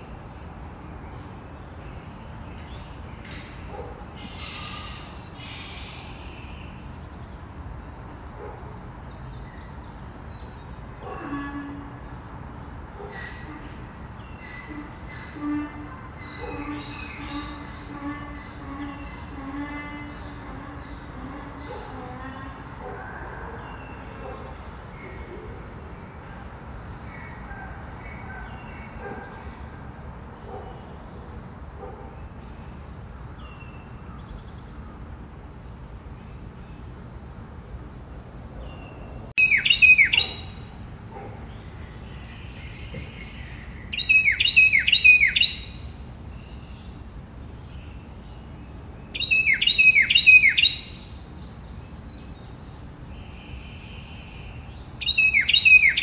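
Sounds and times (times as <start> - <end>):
bird singing: 0.0 - 7.4, 8.4 - 12.0, 13.0 - 25.7, 33.4 - 35.0, 38.6 - 56.0
low background hum: 0.0 - 56.0.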